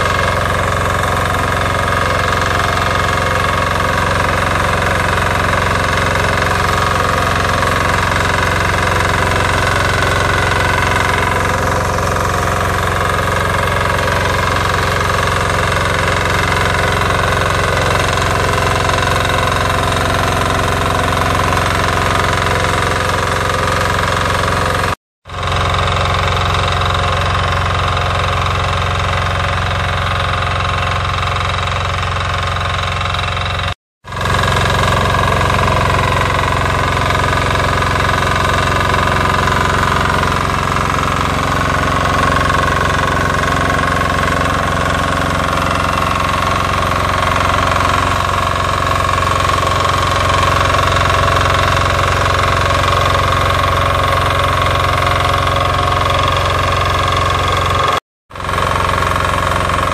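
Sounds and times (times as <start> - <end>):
diesel tiller engine running: 0.0 - 59.9.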